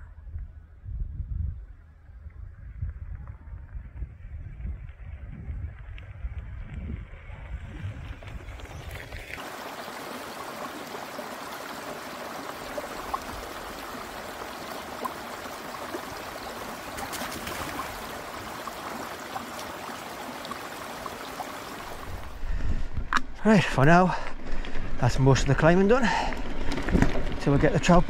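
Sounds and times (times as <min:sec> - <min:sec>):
low wind rumble: 0:00.0 - 0:10.9, 0:12.6 - 0:28.0
rain falling: 0:08.2 - 0:22.4, 0:24.1 - 0:28.0.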